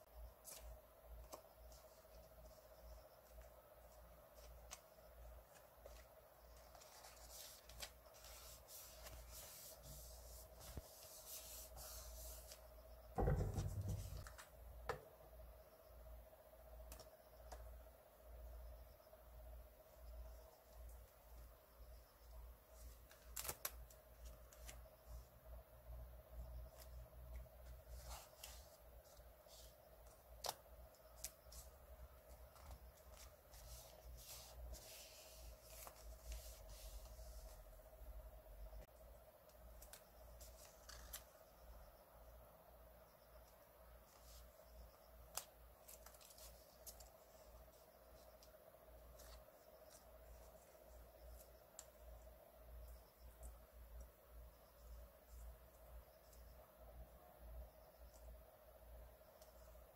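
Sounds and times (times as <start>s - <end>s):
faint steady hum: 0.0s - 59.9s
dull thump: 13.2s - 14.2s
paper rustling and tapping: 13.2s - 15.1s.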